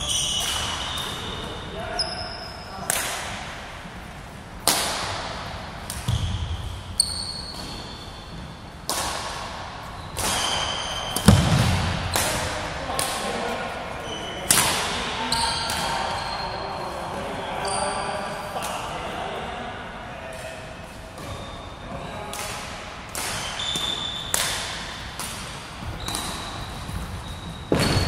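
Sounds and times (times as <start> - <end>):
racket hitting shuttlecock: 4.6 - 6.8, 8.8 - 13.4
shoes squeaking on wooden floor: 25.8 - 28.0.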